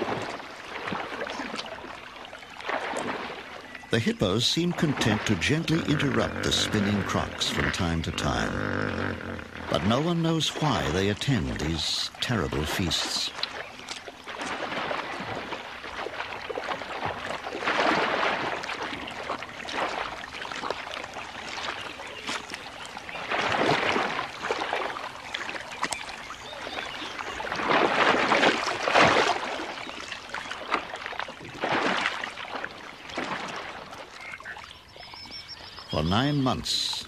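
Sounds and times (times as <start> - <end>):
water splashing and sloshing: 0.0 - 37.0
crocodiles thrashing in water: 4.6 - 11.2, 14.2 - 21.8, 23.1 - 25.2, 26.7 - 33.9.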